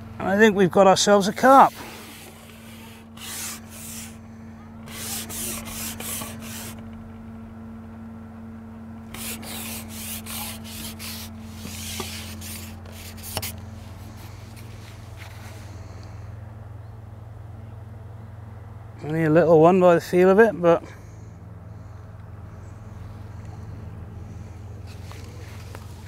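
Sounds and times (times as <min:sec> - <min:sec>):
fishing pole rubbing and swishing: 0:01.4 - 0:04.2, 0:04.8 - 0:06.8, 0:09.1 - 0:15.7.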